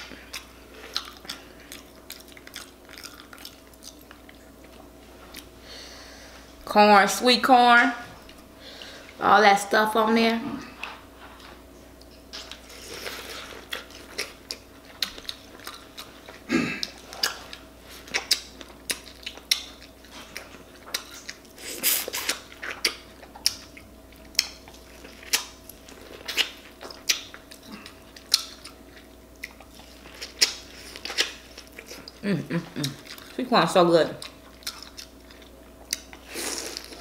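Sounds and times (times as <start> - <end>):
person chewing corn: 0.0 - 5.5, 11.2 - 33.4, 34.2 - 37.0
lip smacks: 16.8 - 28.8.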